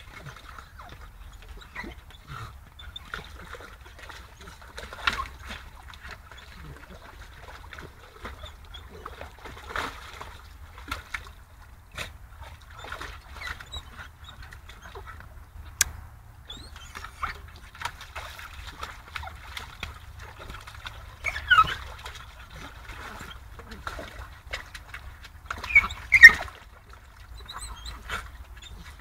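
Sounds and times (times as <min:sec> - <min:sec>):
water splashing and sloshing: 0:00.0 - 0:29.0
dog yelp: 0:21.2 - 0:21.9, 0:25.6 - 0:26.5.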